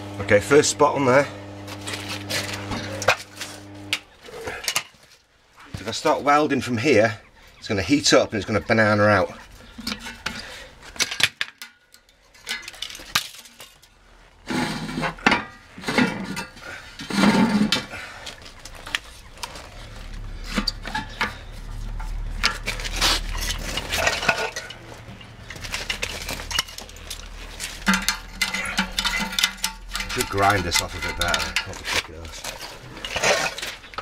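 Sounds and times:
metal clanks on wheel rims: 0:20.3 - 0:34.0.

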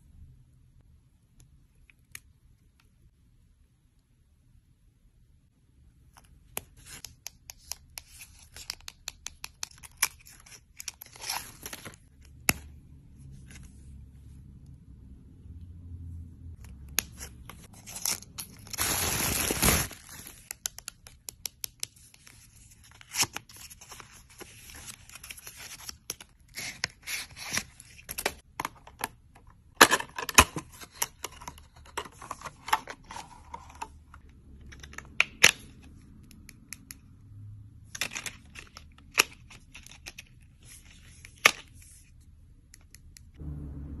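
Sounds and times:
packaging tearing: 0:17.8 - 0:20.4
cellophane crinkling: 0:17.9 - 0:20.5.

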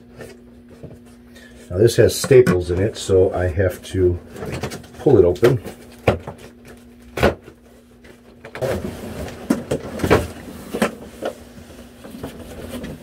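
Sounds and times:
cardboard scraping and rustling: 0:04.3 - 0:13.0.

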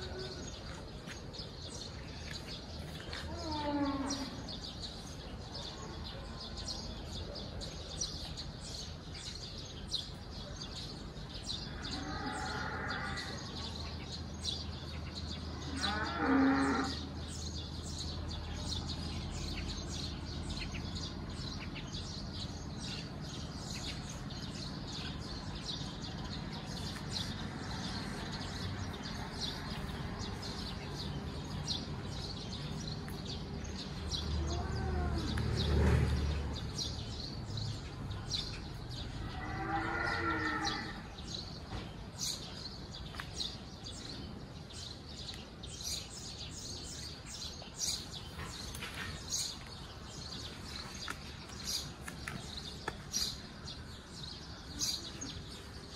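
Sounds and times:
small birds chirping: 0:00.0 - 0:55.9
cow mooing: 0:15.7 - 0:17.0, 0:39.4 - 0:41.0.

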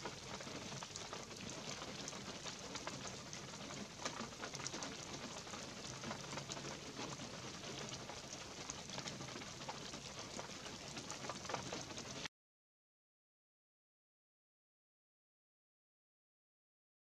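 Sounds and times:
light rain falling through pine trees: 0:00.0 - 0:12.3.

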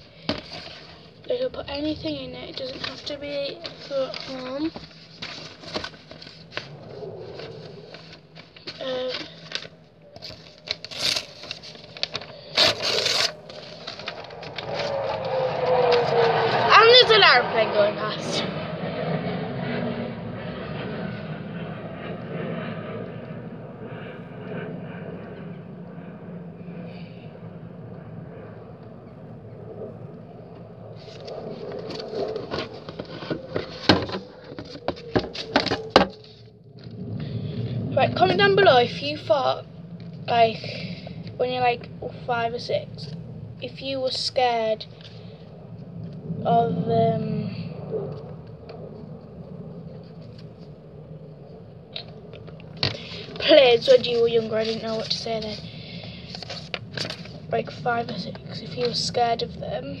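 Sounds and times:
airplane droning overhead: 0:00.0 - 1:00.0
paper rustling and crinkling: 0:02.5 - 0:15.3, 0:52.8 - 0:55.6, 0:56.3 - 0:57.4.

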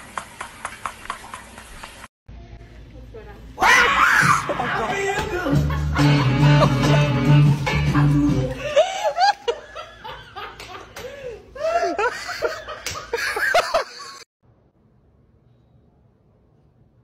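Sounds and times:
person laughing hard: 0:04.1 - 0:07.2, 0:07.9 - 0:14.3.

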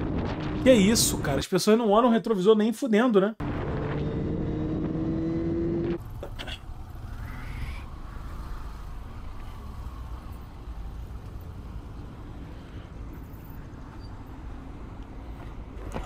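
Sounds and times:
motorcycle engine rumble: 0:03.4 - 0:16.0
traffic noise: 0:03.4 - 0:16.0.

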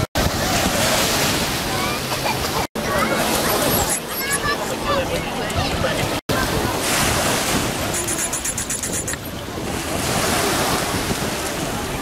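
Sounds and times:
surf on pebble beach: 0:00.0 - 0:12.0
wind buffeting microphone: 0:03.5 - 0:12.0.

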